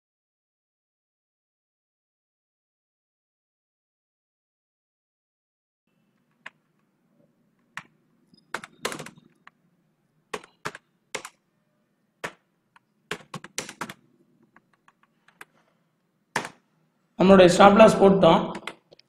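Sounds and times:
typing on computer keyboard: 7.6 - 9.6, 10.3 - 11.4, 12.2 - 15.6, 16.3 - 16.6, 18.5 - 19.0.

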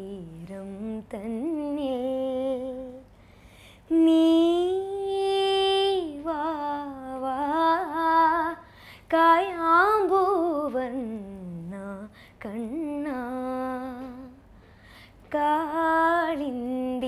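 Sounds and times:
girl singing unaccompanied: 0.0 - 3.1, 3.9 - 17.0.

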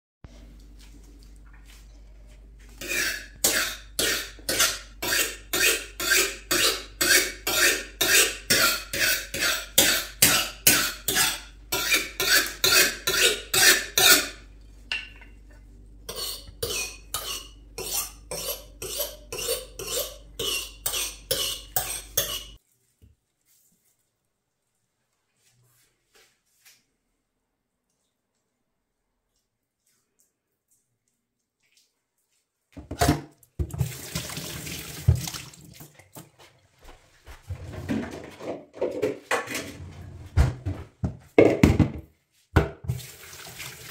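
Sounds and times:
knife sharpening scrapes: 2.8 - 14.4, 16.1 - 22.6.

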